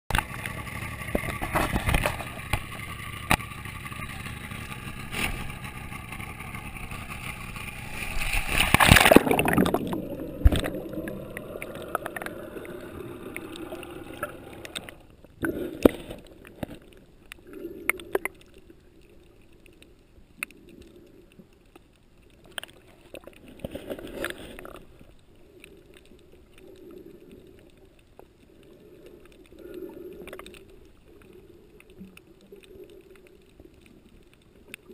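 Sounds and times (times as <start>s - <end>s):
underwater ticks: 0.1s - 34.9s
loud splash: 7.7s - 10.8s
water splashing around swim fins: 7.7s - 15.0s.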